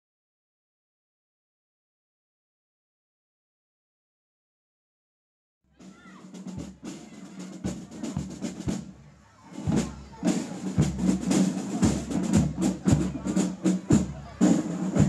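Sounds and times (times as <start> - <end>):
brass band playing outdoors: 5.7 - 15.0
bass drum beats: 5.8 - 9.0, 9.6 - 15.0.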